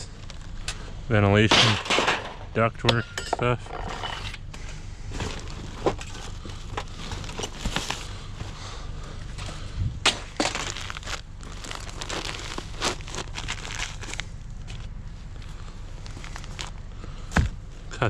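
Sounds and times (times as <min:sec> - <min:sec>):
cardboard and plastic rustling: 0:04.5 - 0:17.6.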